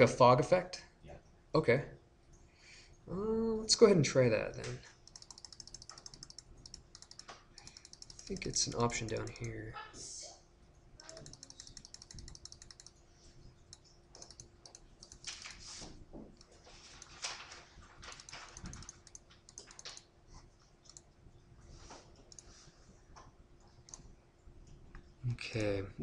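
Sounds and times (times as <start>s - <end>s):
faint steady hum: 0.0s - 26.0s
keyboard and mouse clicking: 4.5s - 9.7s, 11.0s - 13.0s, 13.6s - 15.6s, 18.0s - 20.1s, 20.8s - 21.2s, 22.2s - 22.6s, 23.2s - 25.8s.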